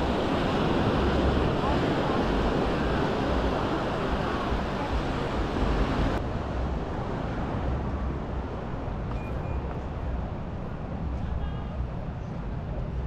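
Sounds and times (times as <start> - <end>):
surf washing onto beach: 0.0 - 6.2
wind buffeting microphone: 0.0 - 11.2.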